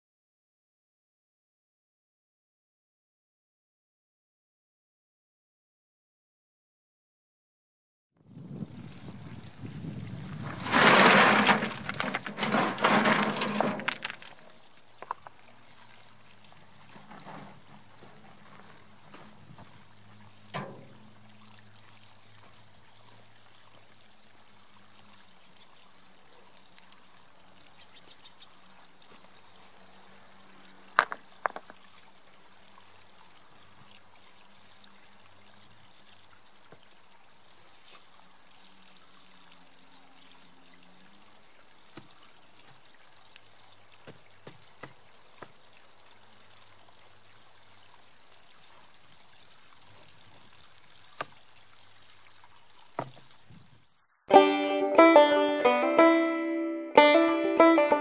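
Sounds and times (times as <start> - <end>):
water trickling from pipe: 8.3 - 10.7, 11.6 - 54.1
rocks clattering onto pile: 10.3 - 15.4, 16.9 - 19.7, 31.0 - 31.8
rock knocking on rock: 10.4 - 15.2, 31.0 - 31.8, 53.0 - 53.2.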